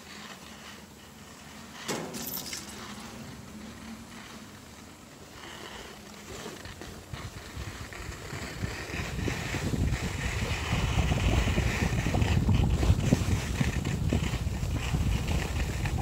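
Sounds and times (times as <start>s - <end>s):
wind buffeting microphone: 7.0s - 16.0s.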